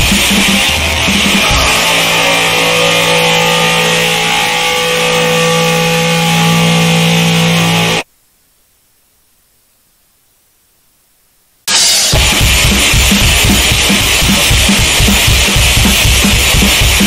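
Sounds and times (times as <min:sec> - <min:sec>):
distorted electric guitar chord: 0:00.0 - 0:08.1, 0:11.7 - 0:17.0
drums: 0:00.0 - 0:08.1, 0:11.6 - 0:17.0.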